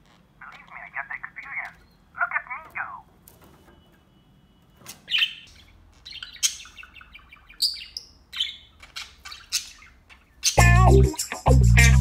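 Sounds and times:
budgerigar chirping: 0:05.1 - 0:12.0.

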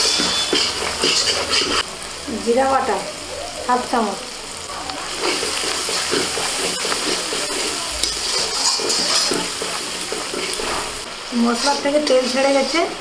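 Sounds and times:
metal spatula scraping pan: 0:00.0 - 0:01.8, 0:05.1 - 0:13.0
paste sizzling in oil: 0:00.0 - 0:13.0
spatula tapping on metal: 0:05.6 - 0:10.7.

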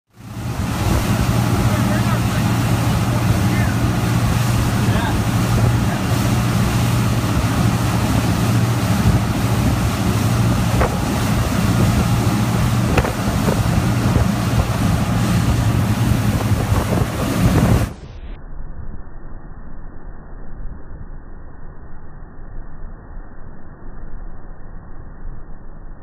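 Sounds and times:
rushing water: 0:00.1 - 0:18.0
boat engine drone: 0:00.1 - 0:18.2
wind noise on microphone: 0:00.3 - 0:18.1.

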